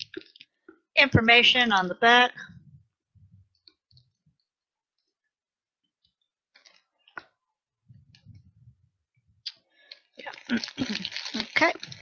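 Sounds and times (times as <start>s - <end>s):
plastic wrapper crinkling: 0.0s - 0.5s, 6.5s - 7.3s, 9.5s - 12.0s
low muffled sound: 7.8s - 9.4s.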